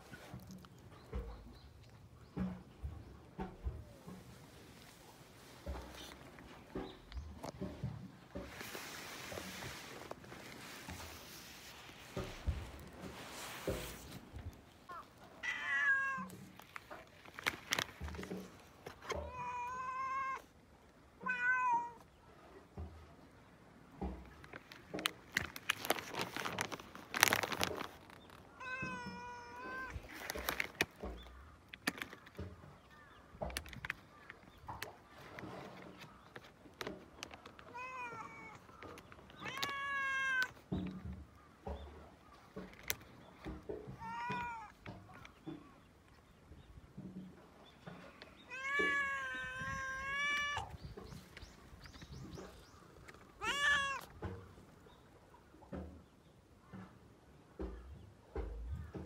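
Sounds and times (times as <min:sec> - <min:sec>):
cat meowing: 0:14.9 - 0:16.4, 0:19.2 - 0:20.5, 0:21.2 - 0:22.0, 0:28.6 - 0:30.1, 0:37.7 - 0:38.6, 0:39.4 - 0:40.6, 0:43.9 - 0:44.7, 0:48.5 - 0:50.8, 0:53.4 - 0:54.1
short noisy clicks and rustles: 0:16.2 - 0:19.3, 0:24.0 - 0:46.2.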